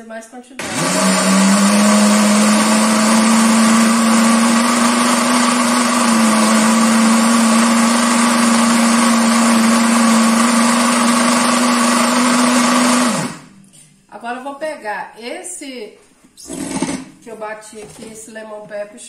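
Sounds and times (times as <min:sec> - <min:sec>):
blender grinding: 0:00.6 - 0:13.6, 0:16.4 - 0:17.2.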